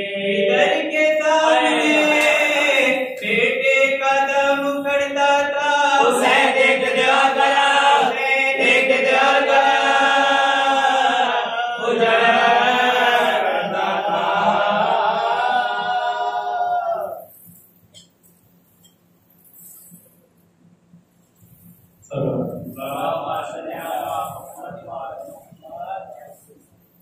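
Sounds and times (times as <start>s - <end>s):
man chanting: 0.0s - 17.0s, 22.0s - 26.6s.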